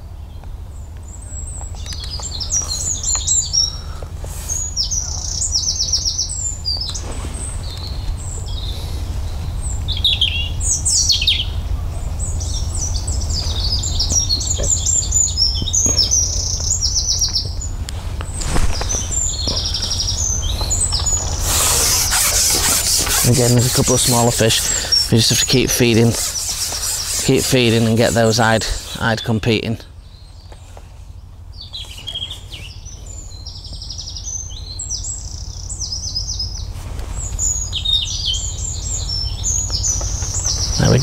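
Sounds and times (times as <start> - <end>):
songbirds chirping and trilling: 0.0 - 41.0.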